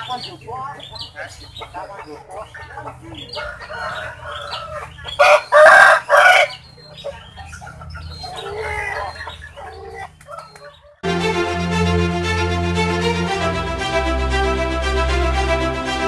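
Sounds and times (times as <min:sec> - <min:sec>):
rooster clucking: 0:00.0 - 0:11.0
rooster crowing: 0:03.4 - 0:06.6.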